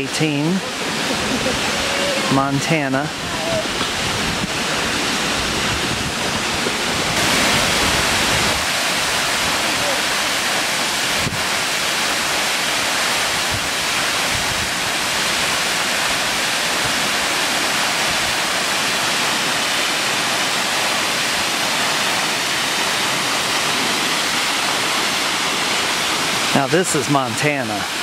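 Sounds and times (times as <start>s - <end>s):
waterfall rushing: 0.0s - 28.0s.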